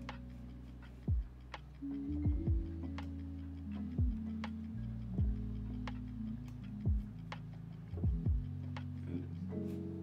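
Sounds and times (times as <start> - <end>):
sharp hi-hat ticks: 0.0 - 10.0
deep kick drum: 1.1 - 1.4, 2.2 - 2.8, 4.0 - 4.3, 5.2 - 5.5, 6.9 - 7.2, 7.9 - 8.6.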